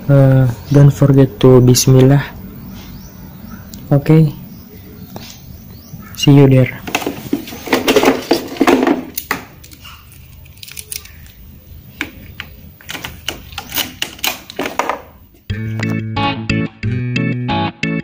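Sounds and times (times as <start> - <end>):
clicks and knocks of handling: 6.8 - 11.4, 12.0 - 15.2
rustling: 6.8 - 11.5
guitar music: 15.5 - 18.0.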